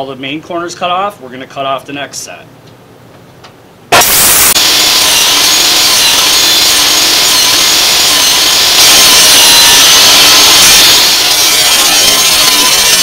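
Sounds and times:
table saw cutting wood: 3.9 - 13.0.

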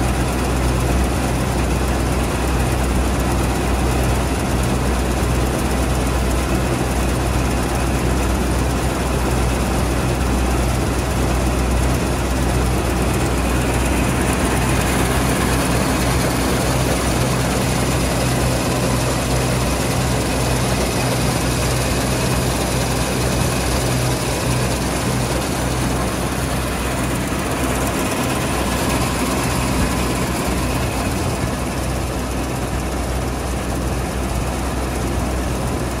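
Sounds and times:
combine harvester droning: 0.0 - 36.0.

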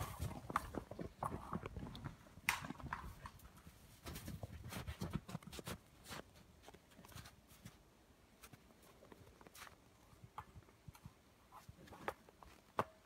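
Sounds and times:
footsteps crunching in snow: 8.4 - 9.8.

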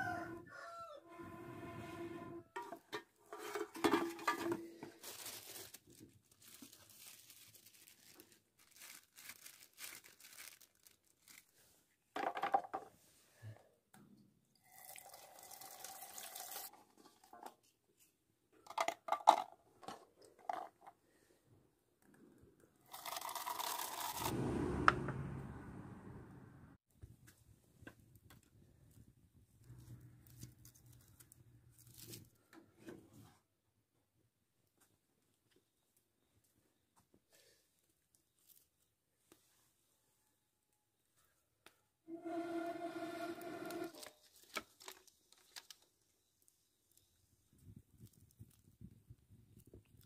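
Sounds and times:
plastic bottles clattering in sack: 2.6 - 10.8.

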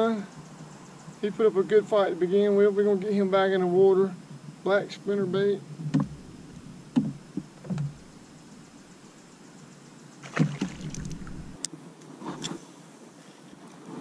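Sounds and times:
fishing gear knocking in canoe: 5.9 - 8.3, 10.2 - 11.6.

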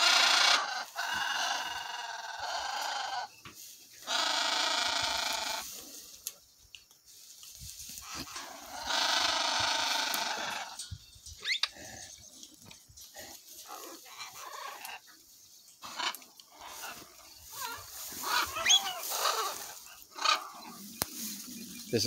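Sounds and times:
long loud animal calls: 0.0 - 3.4, 4.0 - 5.8, 8.1 - 10.9, 15.8 - 20.9.

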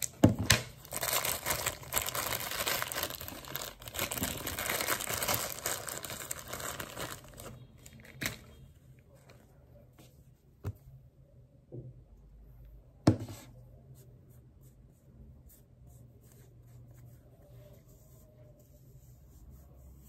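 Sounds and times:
plastic packet crinkling: 0.8 - 8.5.

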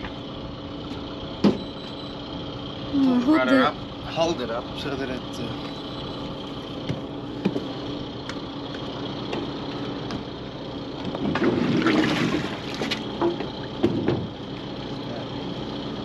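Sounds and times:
engine running: 0.0 - 16.0
clunks knocks and scraping: 5.6 - 10.3, 11.0 - 14.7.

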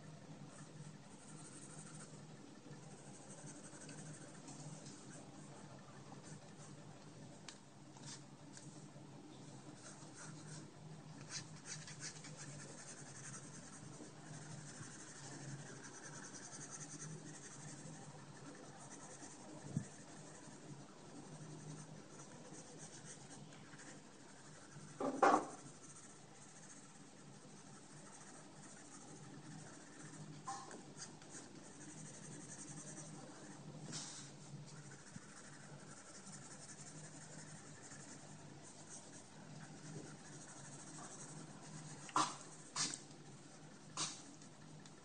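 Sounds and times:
pencil scratching on paper: 0.5 - 6.8, 9.6 - 44.7
thump: 25.0 - 25.6.

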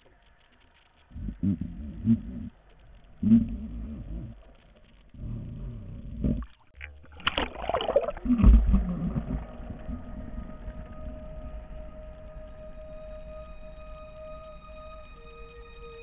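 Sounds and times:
muffled water sloshing: 2.1 - 12.8
splash and bubbling: 6.4 - 10.8.

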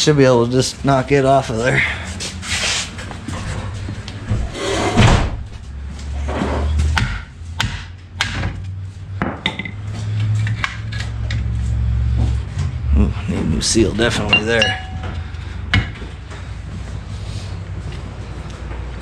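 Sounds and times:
sharp knocks on metal: 6.9 - 8.6.

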